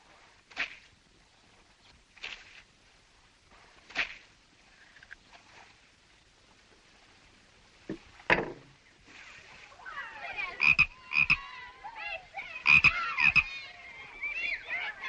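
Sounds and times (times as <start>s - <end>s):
sharp knocks: 7.9s - 8.7s
warbling animal calls: 10.0s - 11.7s, 12.6s - 15.0s.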